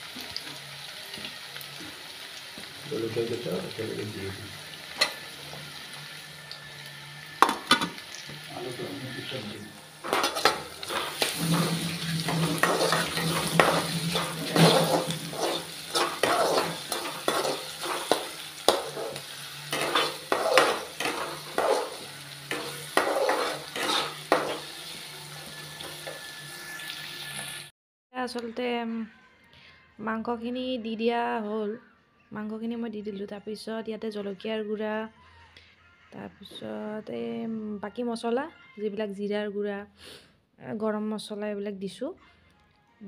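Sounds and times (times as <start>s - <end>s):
onions sizzling in oil: 0.0s - 27.7s
spatula scraping metal pan: 10.0s - 27.6s.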